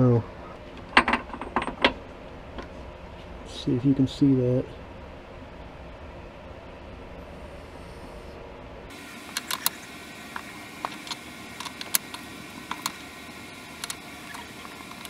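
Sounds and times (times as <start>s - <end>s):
steady hiss: 7.2s - 15.0s
sharp mechanical clicks and ticks: 9.2s - 13.0s, 13.6s - 15.0s.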